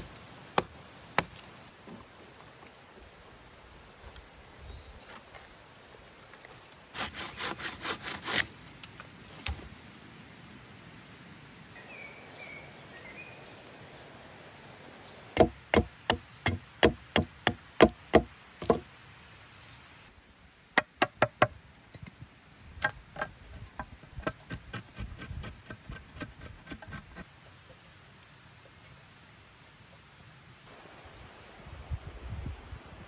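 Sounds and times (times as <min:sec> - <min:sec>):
tool strikes on wood: 0:15.4 - 0:18.9, 0:20.8 - 0:21.6.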